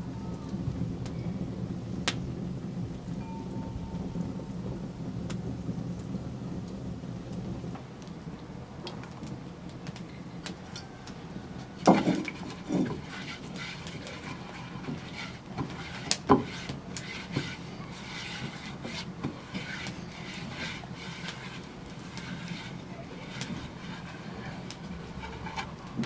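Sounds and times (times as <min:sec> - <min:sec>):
hand rubbing clay dish: 0:11.6 - 0:26.0.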